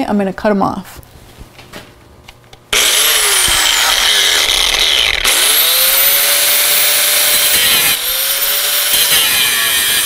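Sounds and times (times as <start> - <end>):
angle grinder cutting steel: 2.8 - 10.0.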